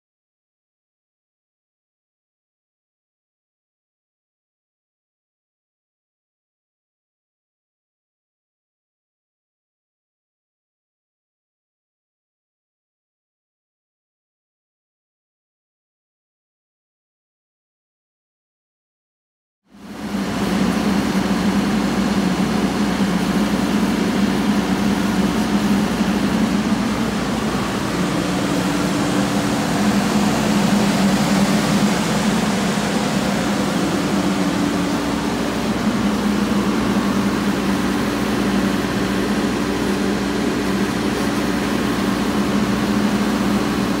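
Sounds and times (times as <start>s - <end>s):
diesel engine droning: 19.8s - 44.0s.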